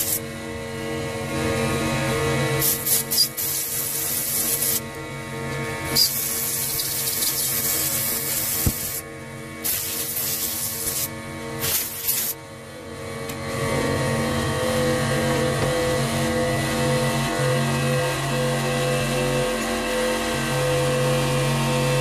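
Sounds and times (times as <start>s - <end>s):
air blow gun hissing: 0.0s - 0.2s, 2.6s - 4.8s, 6.0s - 9.0s, 9.6s - 12.4s.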